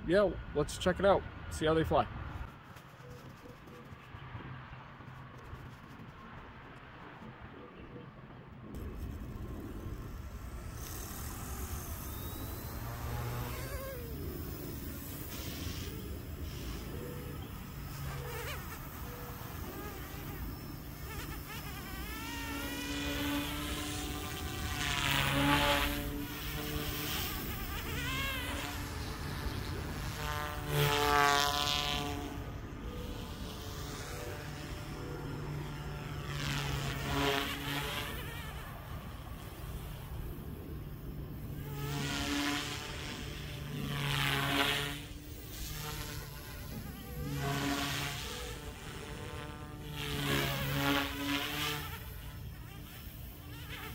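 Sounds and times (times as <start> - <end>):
rc helicopter motor whine: 0.0 - 7.8, 8.6 - 53.9.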